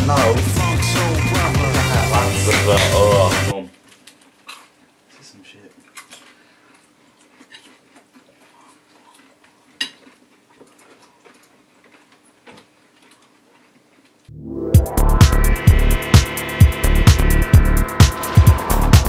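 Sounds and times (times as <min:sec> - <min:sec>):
loud music with rising sweep: 0:00.0 - 0:03.5, 0:14.3 - 0:19.0
people crunching nachos: 0:03.7 - 0:14.3.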